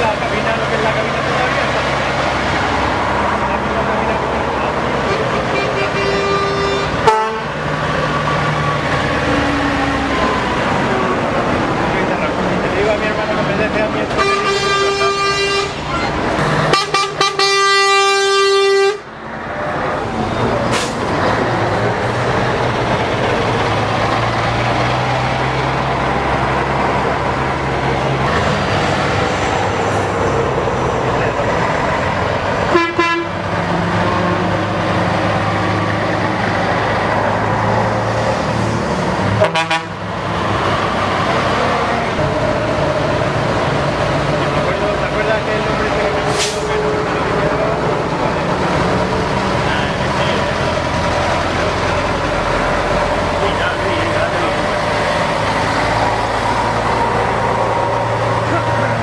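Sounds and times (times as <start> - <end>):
truck diesel engines: 0.0 - 59.0
truck horn blasts: 5.1 - 7.6, 14.1 - 16.0, 16.7 - 19.1, 32.7 - 33.4, 39.4 - 40.0.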